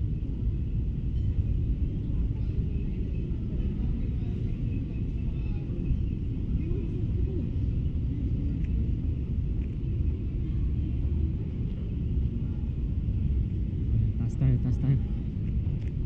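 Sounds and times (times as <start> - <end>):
shopping mall background rumble: 0.0 - 16.0.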